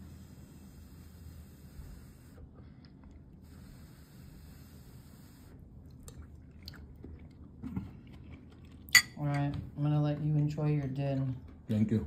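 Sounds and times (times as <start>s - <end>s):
person chewing food: 5.8s - 9.0s.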